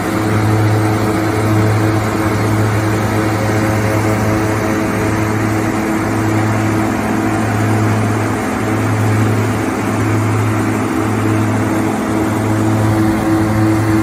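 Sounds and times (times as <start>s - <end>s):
harvester machinery humming: 0.0s - 14.0s.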